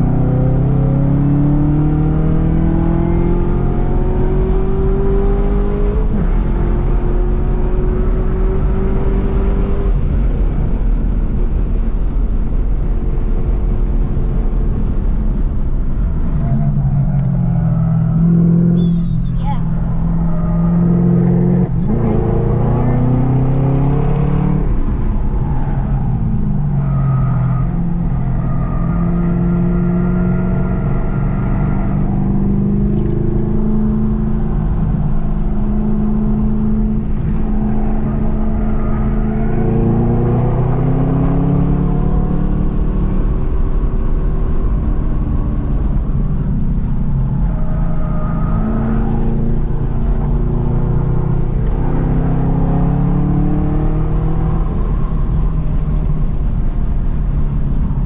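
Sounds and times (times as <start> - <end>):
racing car engine revving: 16.2 - 58.0.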